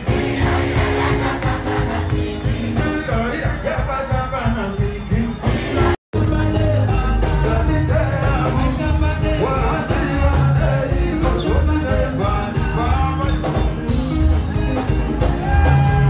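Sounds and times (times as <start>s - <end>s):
bass and drum beat: 0.0s - 16.0s
live band playing: 0.0s - 16.0s
man singing: 2.6s - 14.0s.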